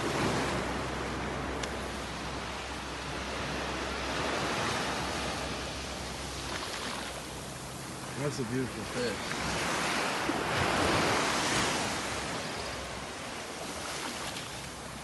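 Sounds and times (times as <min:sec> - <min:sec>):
surf washing onto beach: 0:00.0 - 0:15.0.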